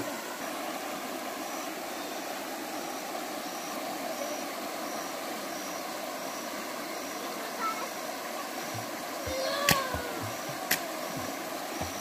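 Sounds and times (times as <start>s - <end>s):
flowing river water: 0.0s - 12.0s.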